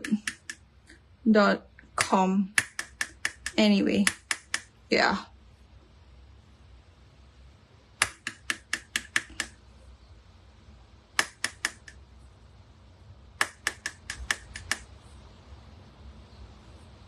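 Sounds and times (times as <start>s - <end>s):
spice bottle tapping clicks: 0.0s - 0.6s, 2.6s - 4.7s, 8.0s - 9.6s, 11.2s - 12.0s, 13.4s - 14.8s.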